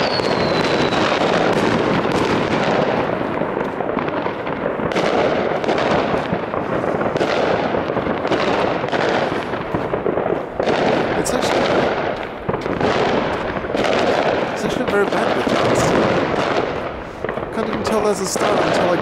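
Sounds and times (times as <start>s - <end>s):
falling firework whistle: 0.0s - 2.3s
fireworks bangs and crackling: 0.0s - 19.0s.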